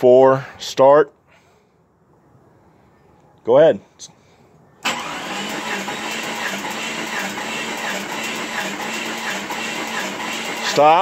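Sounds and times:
engine cranking on starter motor: 4.8 - 11.0.

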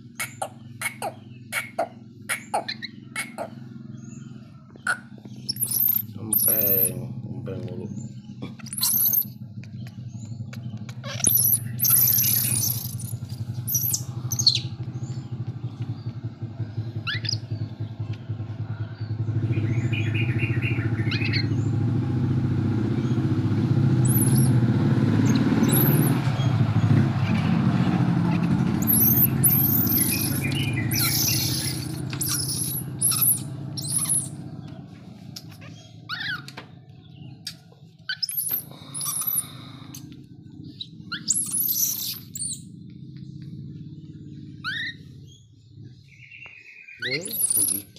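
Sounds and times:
baby monkey squealing: 0.0 - 3.6, 4.8 - 7.0, 8.0 - 14.8, 17.0 - 17.7, 21.0 - 21.7, 24.0 - 24.6, 25.2 - 34.5, 35.3 - 36.6, 37.4 - 42.7, 44.6 - 45.3, 47.0 - 47.9
vehicle engine drone: 0.0 - 47.9.

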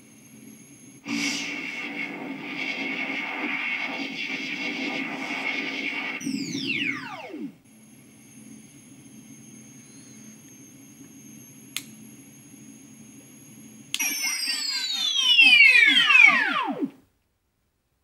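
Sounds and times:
electronic idle hum with whine: 0.0 - 17.0
falling electronic sweeps: 1.0 - 11.6, 14.0 - 16.9
single click: 11.7 - 12.0.

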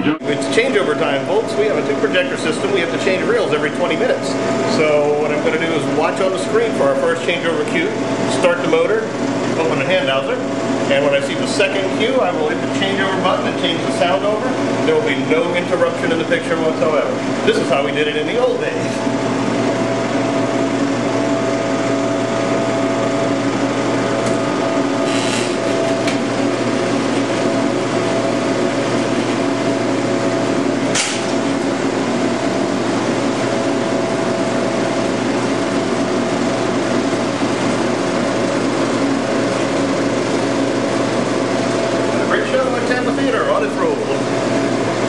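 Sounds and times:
film projector whirring: 0.0 - 45.0
sharp click: 30.9 - 31.4.

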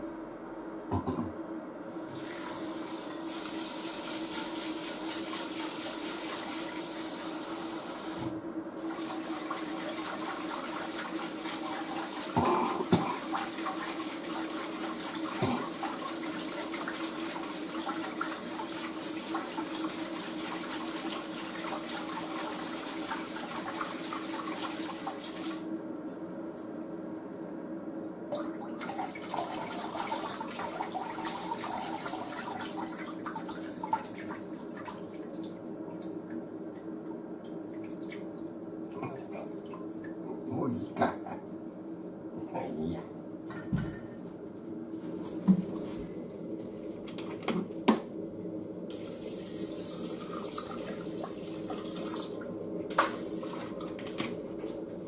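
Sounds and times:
tap water running into sink: 48.9 - 54.4.

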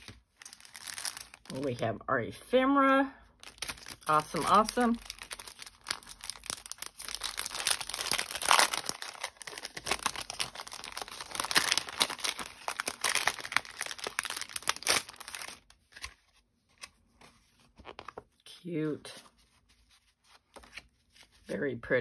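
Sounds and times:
cellophane packaging crinkling: 0.0 - 1.8, 3.3 - 16.2.

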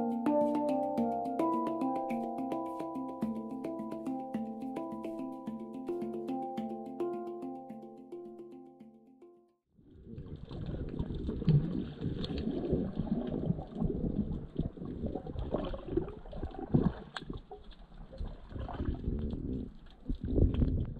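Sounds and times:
muffled underwater gurgle: 9.9 - 20.9.

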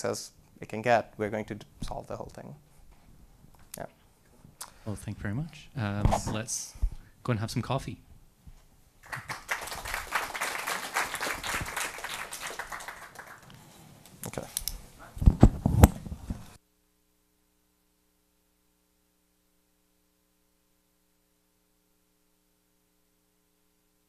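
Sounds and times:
faint mains hum: 0.0 - 24.0
microphone handling thumps: 6.0 - 7.0, 15.2 - 16.6
audience applauding: 9.0 - 13.6.

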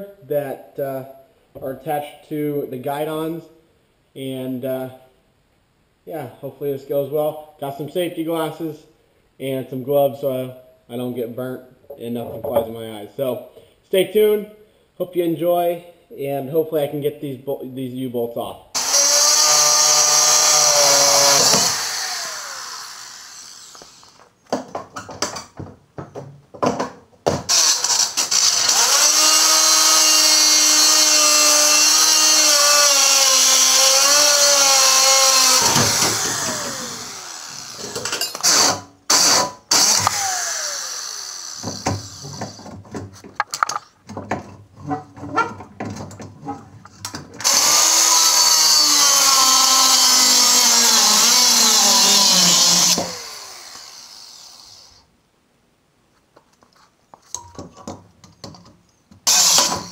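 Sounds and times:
angle grinder cutting steel: 18.8 - 24.2, 27.5 - 42.6, 47.4 - 54.9, 59.3 - 59.9.

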